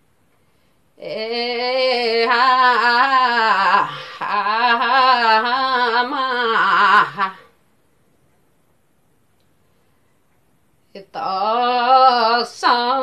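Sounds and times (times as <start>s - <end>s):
woman singing unaccompanied: 1.0s - 7.6s, 10.8s - 13.0s.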